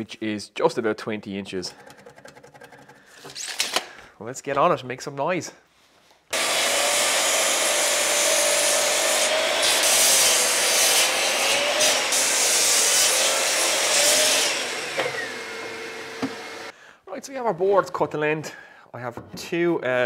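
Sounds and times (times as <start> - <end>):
mitre saw cutting wood: 6.3 - 16.7.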